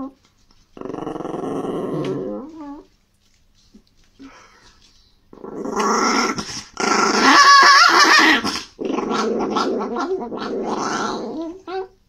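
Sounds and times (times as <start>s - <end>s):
small dog growling: 0.0s - 2.9s, 5.3s - 12.0s.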